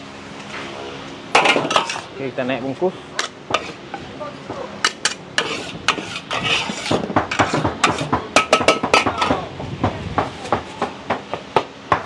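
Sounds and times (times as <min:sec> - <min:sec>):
metal utensils scraping a wok: 0:01.4 - 0:02.1, 0:03.2 - 0:04.1, 0:04.8 - 0:09.1.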